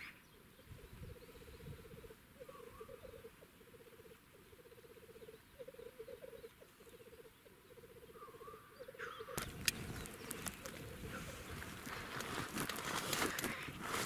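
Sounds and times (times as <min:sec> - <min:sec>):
grouse bubbling song: 0:00.4 - 0:13.8
close rustling: 0:09.4 - 0:14.0.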